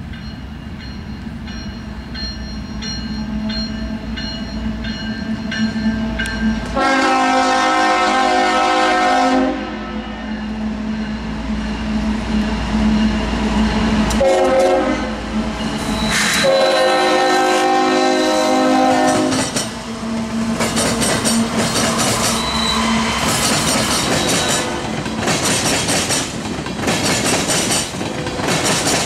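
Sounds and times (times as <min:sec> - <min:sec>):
locomotive horn blasts: 0:06.6 - 0:10.3, 0:14.1 - 0:15.2, 0:16.1 - 0:20.6
wheels clattering on rails: 0:19.0 - 0:19.9, 0:20.5 - 0:29.0.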